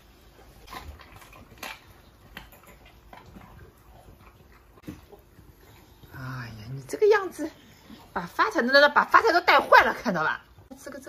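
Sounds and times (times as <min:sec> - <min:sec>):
dog chewing: 0:00.0 - 0:08.2.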